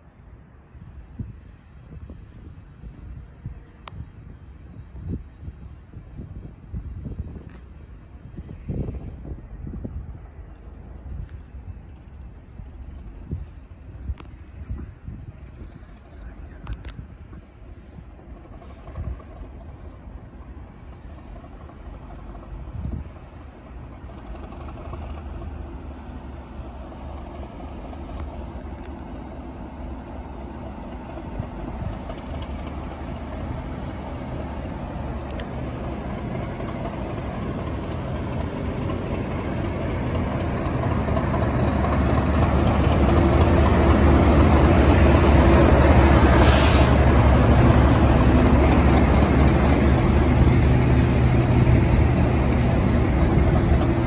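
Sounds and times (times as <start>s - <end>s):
diesel locomotive engine passing: 0.0s - 54.0s
brief hiss: 46.3s - 47.1s.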